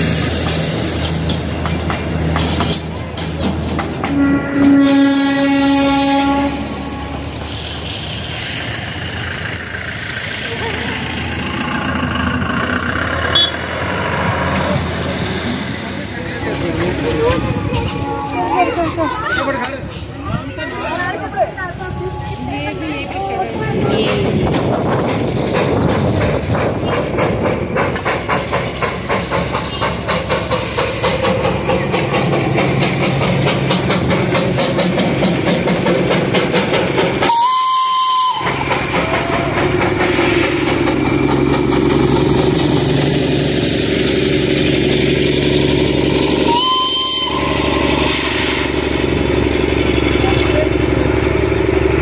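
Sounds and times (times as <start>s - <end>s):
diesel locomotive engine drone: 0.0s - 52.0s
steam locomotive chuffing: 0.0s - 52.0s
train whistle blasts: 4.1s - 7.2s, 37.3s - 38.6s, 46.4s - 48.7s.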